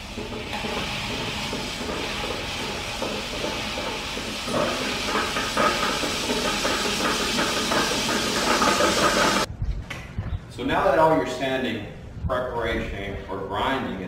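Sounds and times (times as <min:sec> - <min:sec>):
concrete floor grinder whirring: 0:00.0 - 0:09.5.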